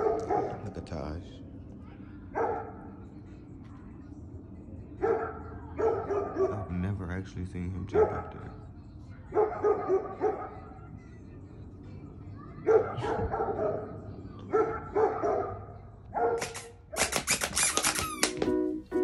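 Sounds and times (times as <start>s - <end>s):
dog barking: 0.0s - 0.9s, 2.3s - 3.0s, 5.0s - 6.9s, 7.8s - 8.6s, 9.2s - 10.8s, 12.6s - 17.1s
music: 18.0s - 19.0s.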